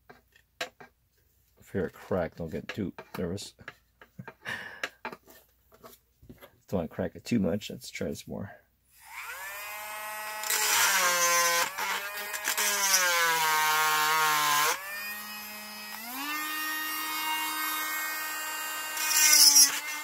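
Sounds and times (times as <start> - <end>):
rotary tool grinding metal wire: 9.0 - 20.0.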